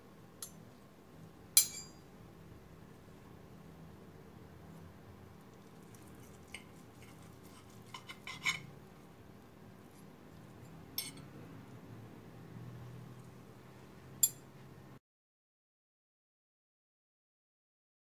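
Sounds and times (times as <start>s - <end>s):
knife and fork clinking on plate: 6.5s - 8.7s, 11.0s - 11.3s.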